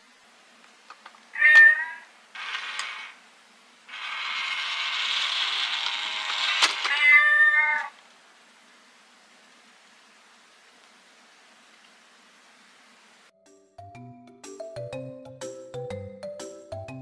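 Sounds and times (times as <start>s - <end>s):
cat yowling: 1.4s - 2.1s, 6.9s - 8.0s.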